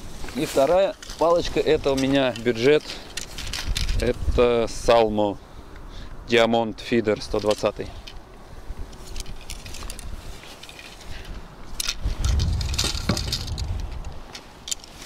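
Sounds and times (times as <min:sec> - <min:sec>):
wind buffeting microphone: 0:11.2 - 0:14.3.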